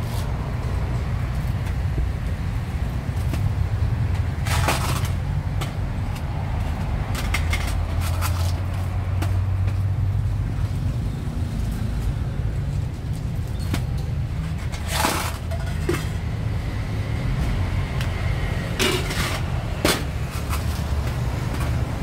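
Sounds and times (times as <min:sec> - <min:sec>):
road traffic rumble: 0:00.0 - 0:22.0
clattering and clinking: 0:13.6 - 0:16.2, 0:18.8 - 0:20.8.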